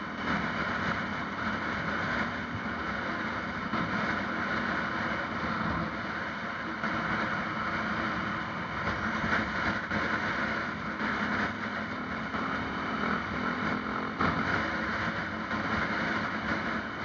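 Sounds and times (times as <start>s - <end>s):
road and wind noise: 0.0s - 17.0s
vehicle engine running: 0.0s - 17.0s.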